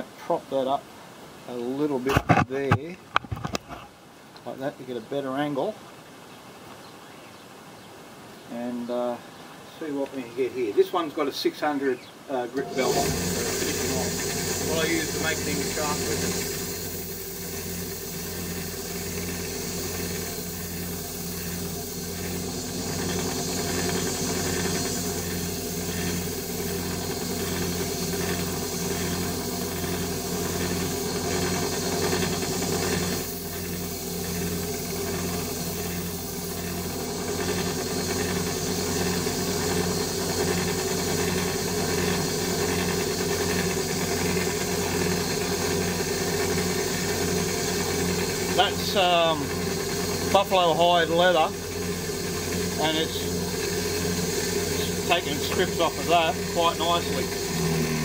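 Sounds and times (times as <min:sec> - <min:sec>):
belt grinder hissing on blade: 0:12.6 - 0:58.0.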